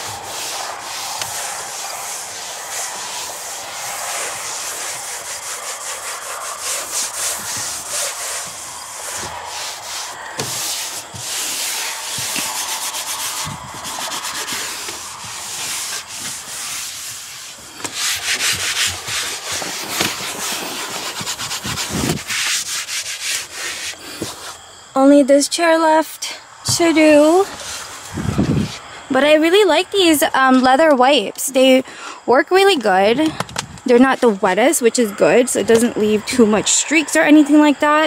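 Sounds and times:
wipe scrubbing car interior: 0:00.0 - 0:24.6.

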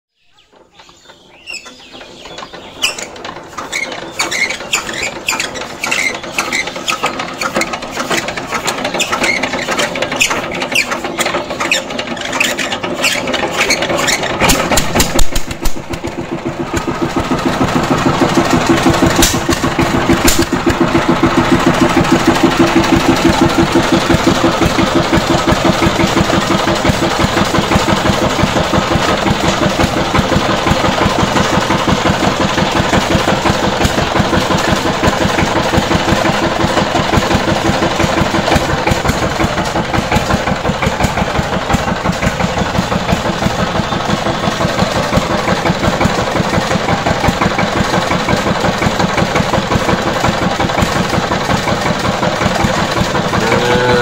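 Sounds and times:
diesel engine hand-cranked and running: 0:00.4 - 0:54.0.

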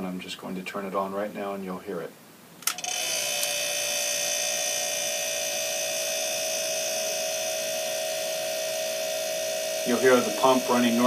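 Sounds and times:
refrigerator compressor humming: 0:02.9 - 0:11.0.

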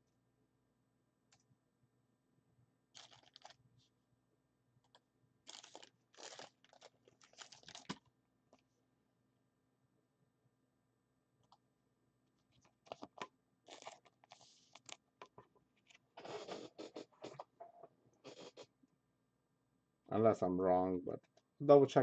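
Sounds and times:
plastic packaging rustling: 0:03.0 - 0:03.6, 0:05.5 - 0:08.0, 0:12.8 - 0:15.0.

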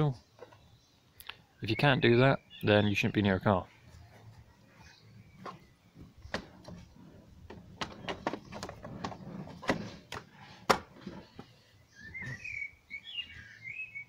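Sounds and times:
bird chirping: 0:00.1 - 0:14.0
plastic knocks and clicks: 0:05.4 - 0:11.5.

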